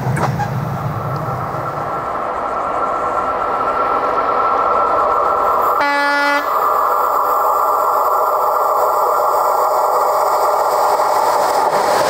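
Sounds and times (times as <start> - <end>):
diesel locomotive engine running: 0.0 - 12.0
train horn blast: 5.8 - 6.5.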